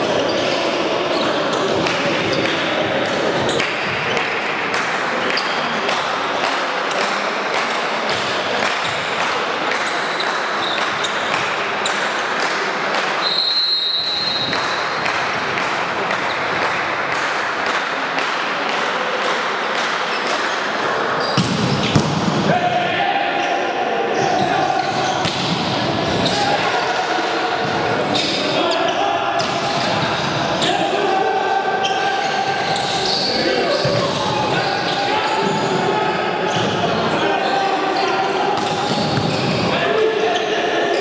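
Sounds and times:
crowd noise and voices: 0:00.0 - 0:41.0
referee's whistle blast: 0:13.2 - 0:14.6.

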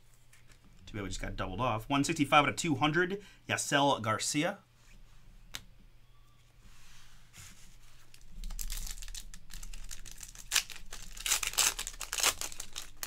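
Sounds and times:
foil wrapper crackling: 0:08.1 - 0:13.0.

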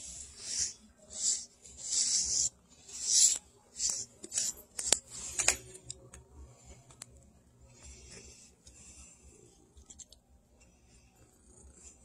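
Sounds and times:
wire brush raking fur: 0:00.0 - 0:05.6.

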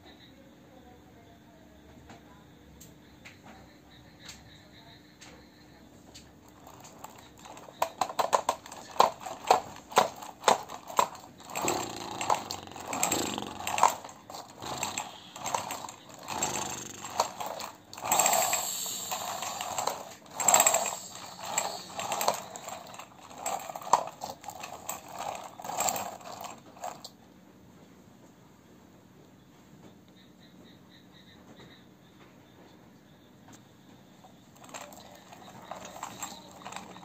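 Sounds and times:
toy motorcycle wheels rolling and scraping: 0:06.1 - 0:27.2, 0:34.2 - 0:37.0.

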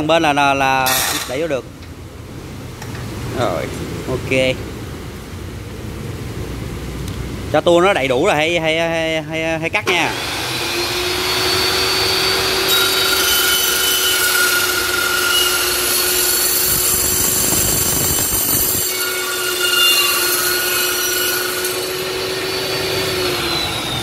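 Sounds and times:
saw blade cutting workpiece: 0:00.9 - 0:01.5, 0:09.9 - 0:24.0
cold-cut saw whining: 0:09.8 - 0:24.0.

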